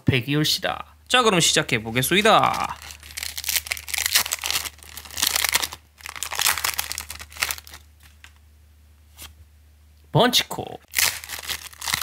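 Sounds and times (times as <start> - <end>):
foil wrapper crinkling: 2.0 - 8.4, 10.9 - 12.0.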